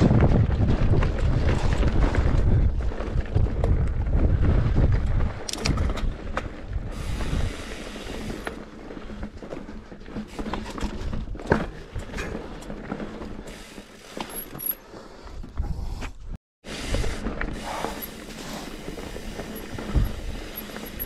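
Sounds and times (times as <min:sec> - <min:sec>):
bike clicks knocks and rattles: 0:04.8 - 0:06.8.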